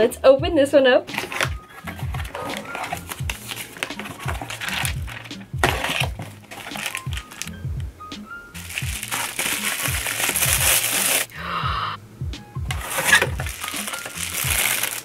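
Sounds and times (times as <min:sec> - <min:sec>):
background music with bass line: 0:00.0 - 0:15.0
plastic packaging crinkling: 0:01.1 - 0:07.6, 0:08.6 - 0:11.3, 0:12.7 - 0:15.0.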